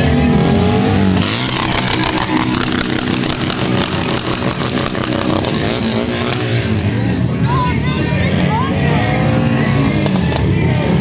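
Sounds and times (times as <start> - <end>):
motorcycle engine at high revs: 0.0 - 7.1.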